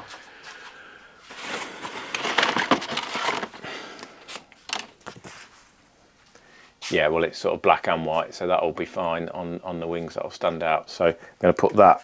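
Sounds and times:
plastic sheet crinkling: 1.3s - 5.6s.

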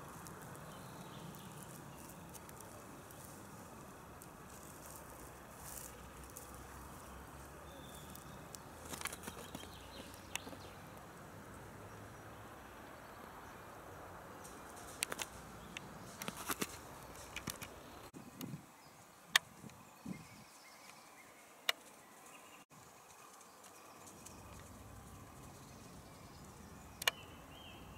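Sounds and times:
quiet outdoor hiss: 0.0s - 27.9s
sharp clicks and snaps: 14.8s - 17.8s, 27.0s - 27.2s.

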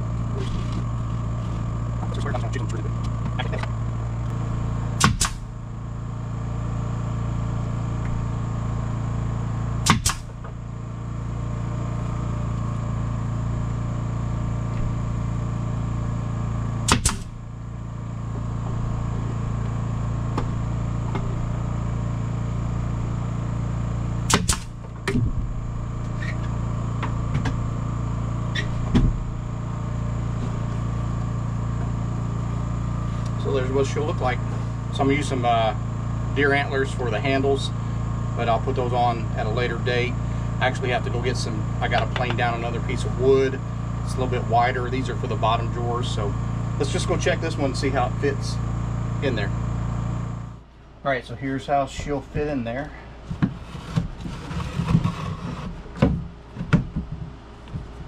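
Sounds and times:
steady machine hum: 0.0s - 58.0s
nail gun firing into wood: 5.0s - 5.5s, 9.8s - 10.4s, 16.8s - 17.4s, 24.3s - 25.2s.

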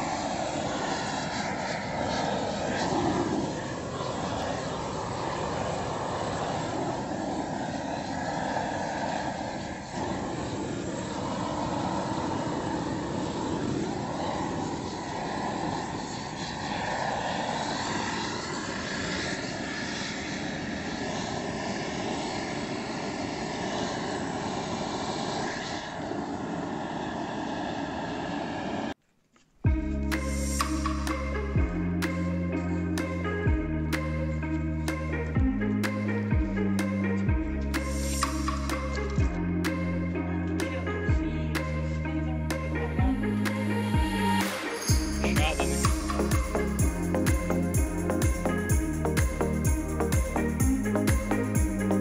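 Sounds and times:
gas torch roaring: 0.0s - 29.0s.

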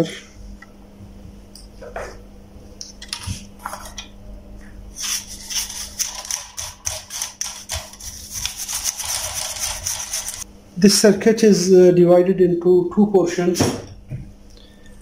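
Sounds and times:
brush scrubbing wire grid: 5.0s - 10.4s.

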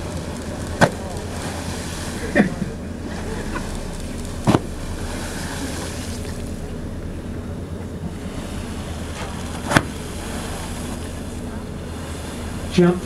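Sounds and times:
lapping water: 0.0s - 12.8s
whale tail slapping water: 0.0s - 12.8s
boat engine humming: 0.0s - 13.0s
wind: 0.0s - 13.0s.

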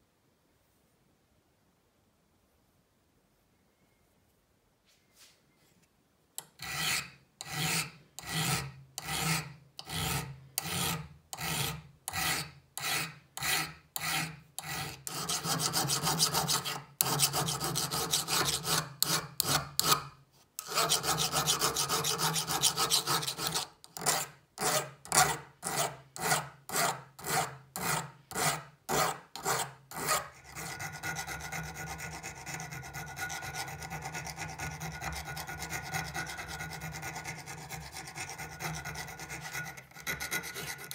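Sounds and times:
hand file rasping on steel: 6.4s - 40.9s
needle file rasping: 6.4s - 40.9s.

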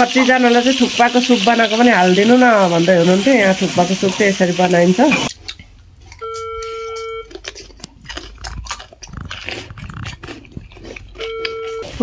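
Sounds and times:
cucumber being bitten and chewed: 5.3s - 12.0s
electronic beep: 6.2s - 7.3s, 11.2s - 12.0s.

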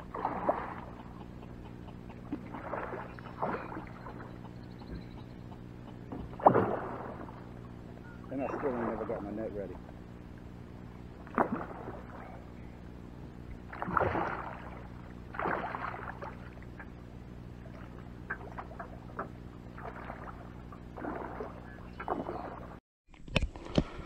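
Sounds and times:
water splashing at boat hull: 0.0s - 1.0s, 2.3s - 4.3s, 6.1s - 9.9s, 11.2s - 12.4s, 13.5s - 17.0s, 17.6s - 22.8s
steady low hum: 0.0s - 22.8s.

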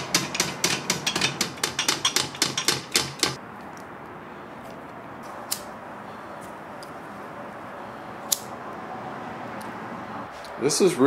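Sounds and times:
hand crank clicking: 0.0s - 3.4s.

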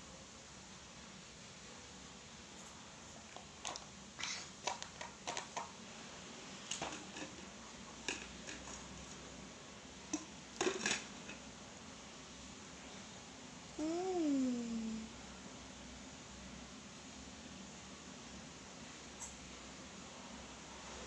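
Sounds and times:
small objects clicking and clattering: 4.6s - 5.7s, 6.7s - 9.2s, 10.2s - 11.4s.

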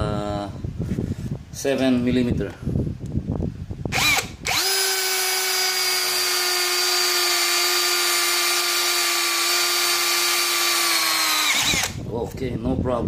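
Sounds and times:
cordless drill whining: 3.9s - 12.1s.

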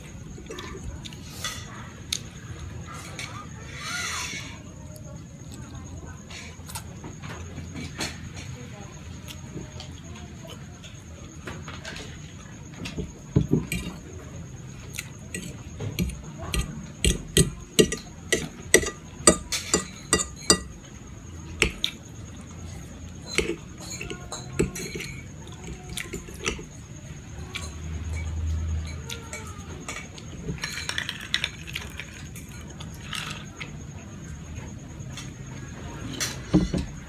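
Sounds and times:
fork scraping ceramic plate: 13.6s - 14.0s, 15.3s - 20.8s, 21.6s - 21.8s, 23.2s - 26.7s
chewing: 13.6s - 20.8s, 21.6s - 27.7s.

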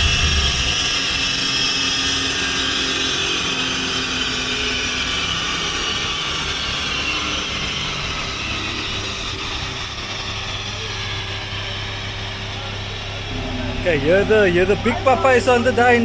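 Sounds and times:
car engine low note: 0.0s - 2.7s, 11.4s - 16.0s
high whine and rush: 0.0s - 6.8s, 11.7s - 16.0s.

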